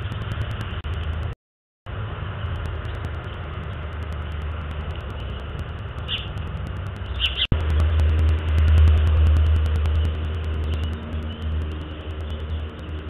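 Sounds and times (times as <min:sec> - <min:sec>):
low outdoor rumble: 0:00.0 - 0:13.0
high bird chirps: 0:06.0 - 0:06.4, 0:07.0 - 0:07.5.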